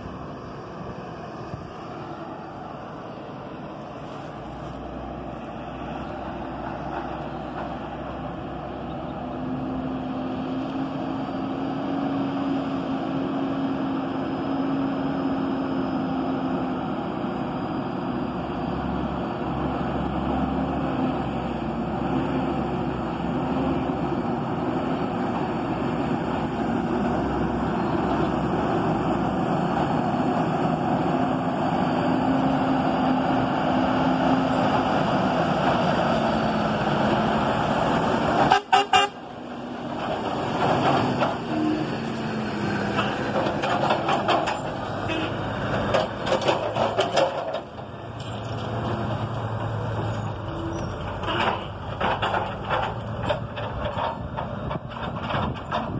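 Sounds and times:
diesel truck engine passing: 0.0 - 55.9
truck load clattering and clunking: 5.8 - 9.8, 18.4 - 55.9
truck horn toot: 38.4 - 39.2, 45.0 - 45.4.

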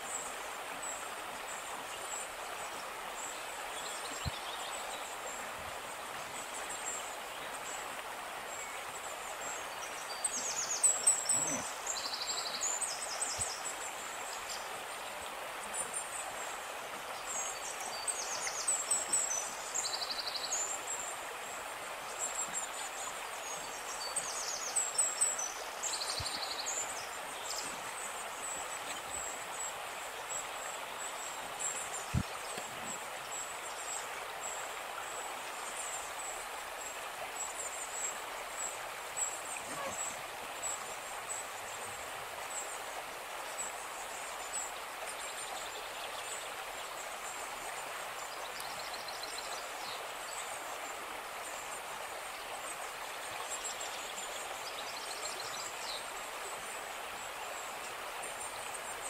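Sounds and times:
outdoor background hiss: 0.0 - 59.0
birds chirping: 9.5 - 13.6, 39.2 - 41.4.

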